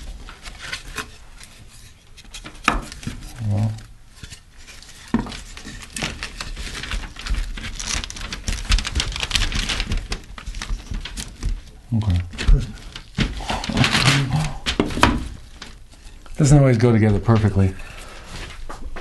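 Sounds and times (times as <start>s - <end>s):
house wrap rustling: 4.0s - 19.0s.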